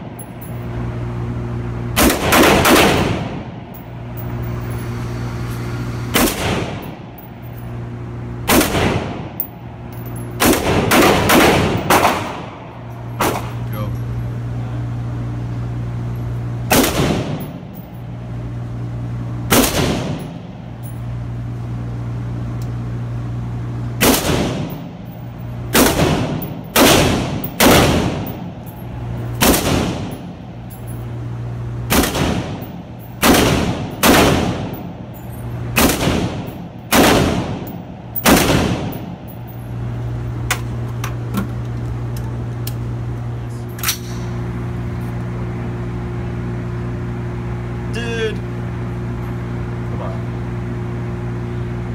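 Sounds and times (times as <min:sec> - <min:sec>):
steady low hum: 0:00.0 - 0:51.9
gunshots ringing off walls: 0:16.7 - 0:17.5, 0:25.7 - 0:28.4.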